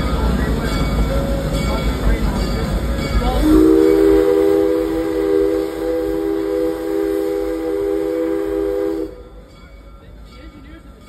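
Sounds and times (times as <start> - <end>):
train whistle chord: 3.3 - 9.4.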